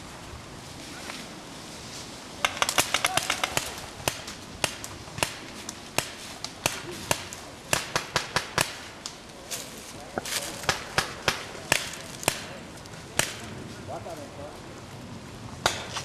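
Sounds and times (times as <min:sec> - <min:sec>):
paintball markers firing: 0:02.4 - 0:05.4.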